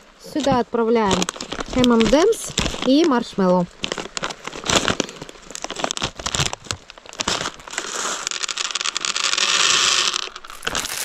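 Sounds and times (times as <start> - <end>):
plastic wrapper crinkling and tearing: 0.3 - 11.0
candies pouring onto wooden board: 3.8 - 11.0.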